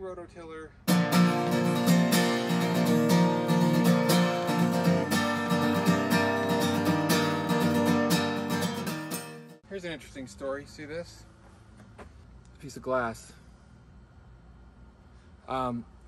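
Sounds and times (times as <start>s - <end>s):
acoustic guitar strumming: 0.9s - 9.6s.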